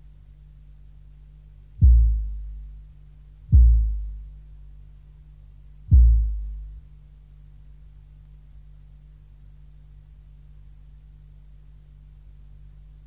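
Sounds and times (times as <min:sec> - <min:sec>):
steady low hum: 0:00.0 - 0:13.0
deep heavy thumps: 0:01.8 - 0:02.7, 0:03.5 - 0:04.4, 0:05.9 - 0:06.8.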